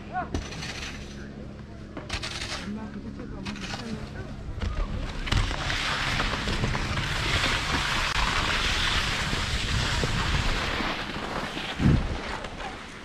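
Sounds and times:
skis scraping over snow: 0:04.8 - 0:13.0
wind buffeting microphone: 0:06.2 - 0:11.1, 0:11.7 - 0:12.2.

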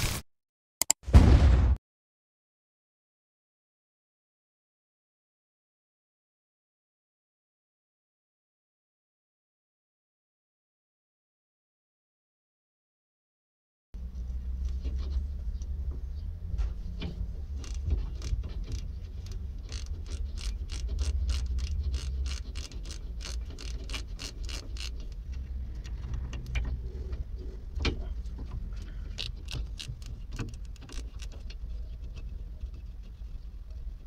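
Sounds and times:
socket ratchet clicking: 0:17.5 - 0:25.4, 0:29.1 - 0:31.4.

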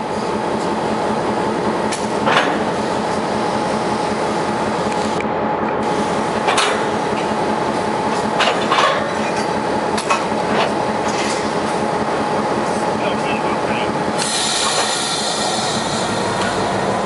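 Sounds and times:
train cars rolling on track: 0:00.0 - 0:17.0.

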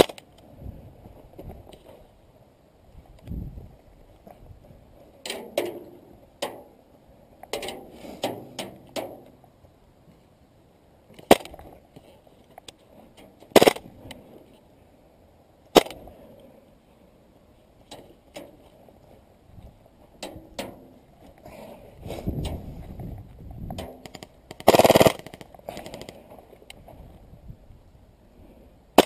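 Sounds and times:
airsoft gun shots: 0:13.6 - 0:13.8, 0:24.0 - 0:25.4.

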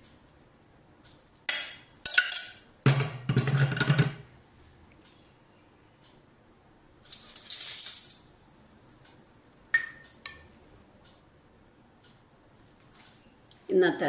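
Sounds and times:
spoon clinking against ceramic bowl: 0:09.7 - 0:10.6.

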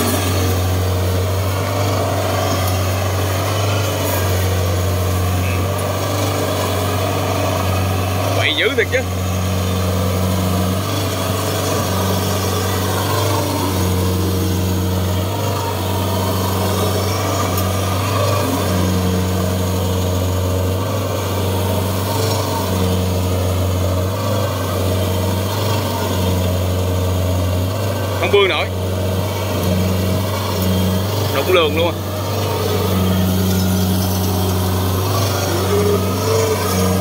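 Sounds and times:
combine harvester diesel engine running: 0:00.0 - 0:37.0.

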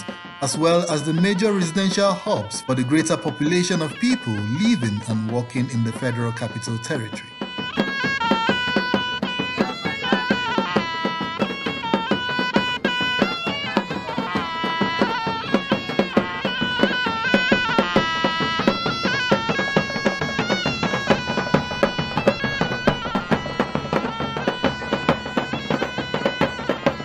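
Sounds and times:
held-note melody: 0:00.0 - 0:27.0
steady percussion beat: 0:00.0 - 0:27.0.

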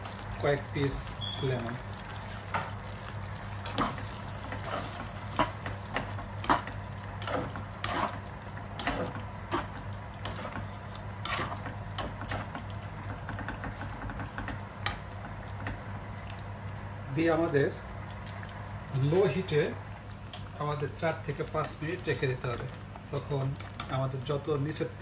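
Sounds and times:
spatula stirring thick curry: 0:00.0 - 0:16.4.

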